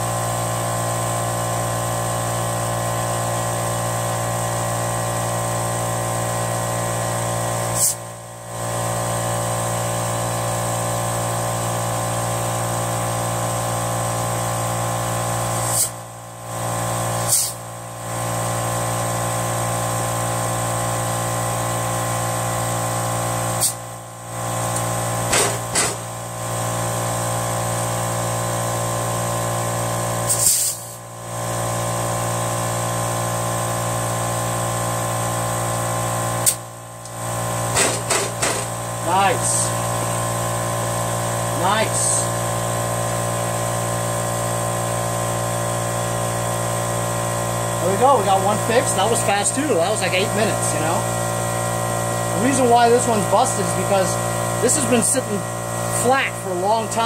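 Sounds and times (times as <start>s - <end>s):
compressed air hissing into tire: 7.7s - 8.0s, 15.6s - 16.0s, 17.2s - 17.6s, 23.5s - 23.8s, 30.2s - 31.0s.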